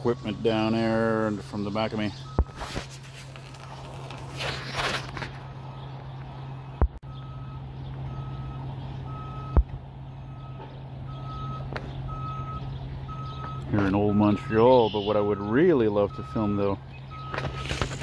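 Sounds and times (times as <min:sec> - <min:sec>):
reversing alarm beeps: 0:00.0 - 0:02.7, 0:07.0 - 0:18.0
low engine hum: 0:00.0 - 0:18.0.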